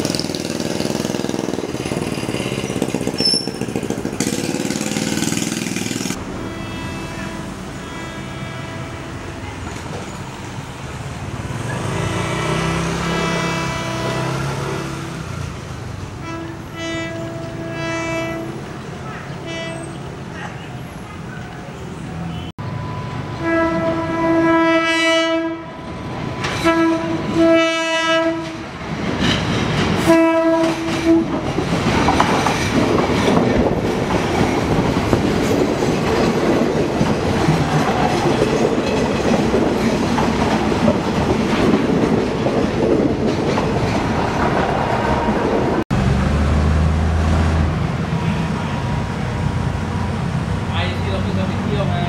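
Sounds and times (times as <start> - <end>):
train wheels clattering on rails: 0.0 - 6.2, 28.4 - 45.8
train horn blasts: 6.2 - 9.6, 12.8 - 15.0, 16.2 - 20.1, 23.4 - 25.9, 26.5 - 28.7, 30.0 - 31.4.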